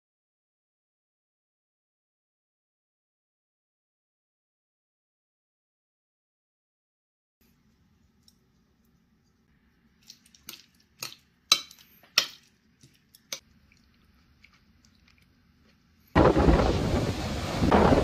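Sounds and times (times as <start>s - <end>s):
faint steady hum: 7.4s - 16.2s
sharp clicks and wet smacks: 10.0s - 15.3s.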